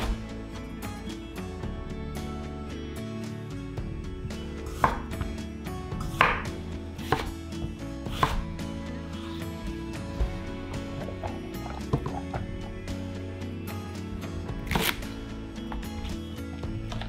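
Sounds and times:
knife cutting onto wooden board: 8.1s - 8.5s, 14.6s - 15.1s.

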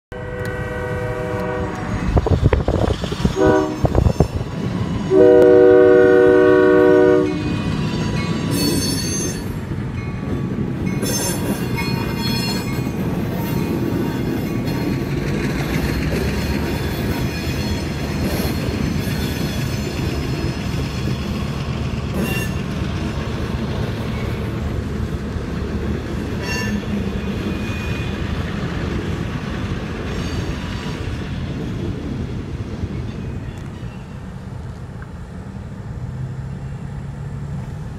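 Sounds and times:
locomotive horn blasts: 0.1s - 2.1s, 3.3s - 4.1s, 5.1s - 7.6s
freight cars rumbling past: 0.5s - 37.9s
train wheel squeals: 1.8s - 5.2s, 7.2s - 24.8s, 26.1s - 28.8s, 30.0s - 31.9s, 32.8s - 34.5s.

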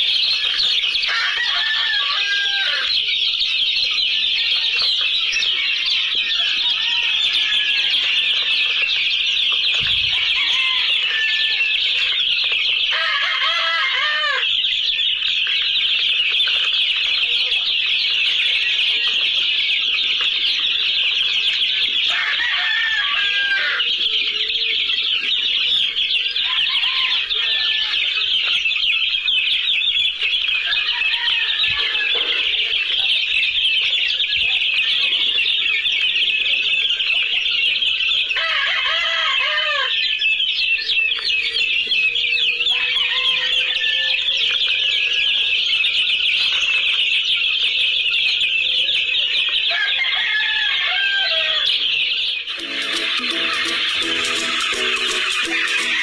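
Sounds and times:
lower arched chicken calls: 0.0s - 17.0s, 22.0s - 33.1s, 38.2s - 45.5s, 49.5s - 56.0s
chicks peeping: 0.0s - 56.0s.

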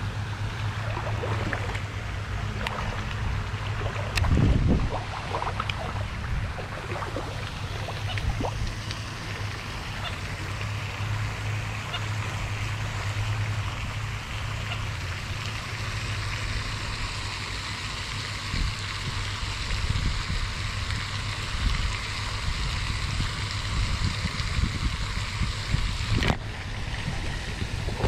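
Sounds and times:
fountain spray splashing: 0.0s - 28.0s
wind buffeting microphone: 0.7s - 9.3s, 18.5s - 28.0s.

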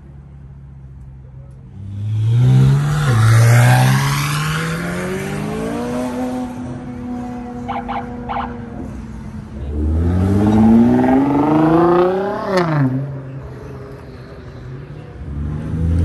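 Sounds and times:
car accelerating past: 9.7s - 13.3s.

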